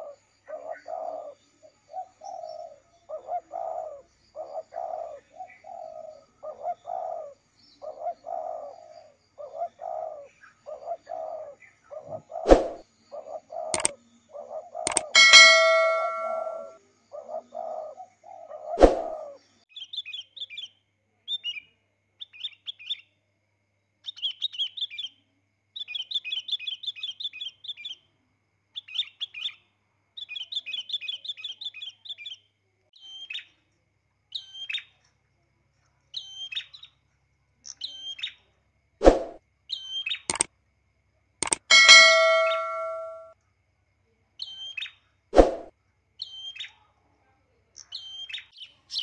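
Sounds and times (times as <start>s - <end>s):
sharp clicks: 14.9s - 16.6s, 41.4s - 43.2s
birds chirping: 14.9s - 16.7s, 41.4s - 43.2s
ringing ding: 14.9s - 16.8s, 41.4s - 43.3s.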